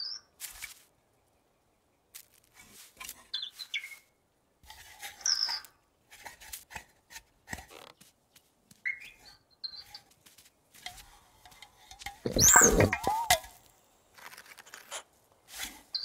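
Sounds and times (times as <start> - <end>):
soft taps and rustles: 6.2 - 8.9, 10.0 - 12.2
cartoon bird chirps and peeps: 12.3 - 13.4.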